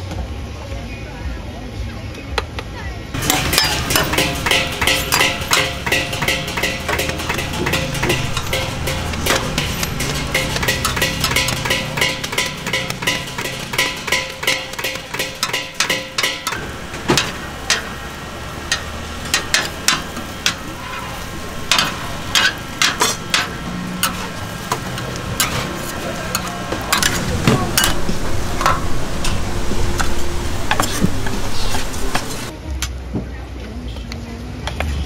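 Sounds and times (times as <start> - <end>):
metal utensil scraping pan: 3.2 - 32.5
food frying hiss: 5.7 - 32.5.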